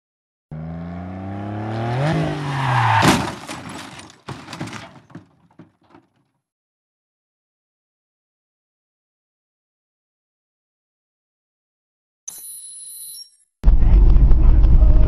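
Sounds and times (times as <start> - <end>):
engine revving up: 0.5 - 2.8
car crash smash: 2.3 - 6.0
debris clattering: 3.0 - 6.1.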